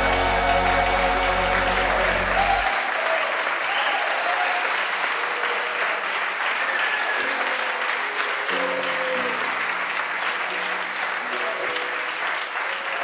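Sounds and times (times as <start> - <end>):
gospel instrumental music: 0.0 - 3.7, 7.1 - 13.0
audience clapping along: 0.0 - 13.0.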